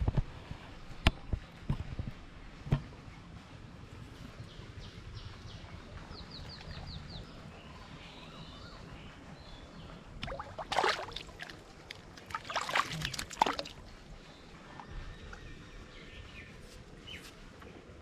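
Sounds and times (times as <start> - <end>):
fish splashing at water surface: 10.2 - 13.8.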